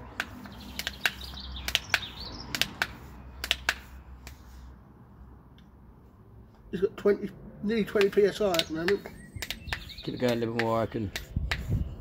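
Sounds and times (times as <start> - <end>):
bicycle pump clicking: 0.1 - 4.4, 8.0 - 11.7.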